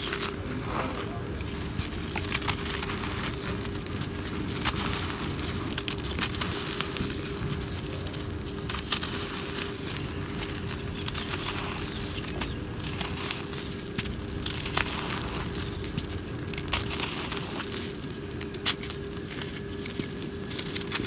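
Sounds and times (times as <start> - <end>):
gritty rasp of crumbling cement: 0.0 - 21.0
small sharp crackles: 0.0 - 21.0.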